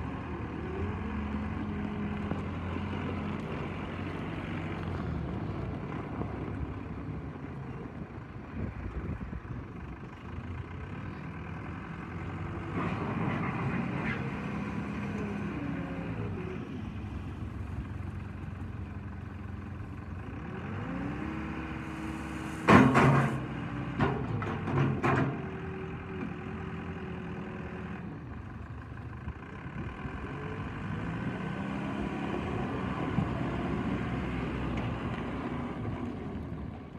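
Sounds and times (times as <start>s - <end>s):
diesel engine revving: 10.7s - 18.4s, 19.5s - 28.3s, 29.4s - 36.9s
loader bucket clanking: 22.6s - 25.6s.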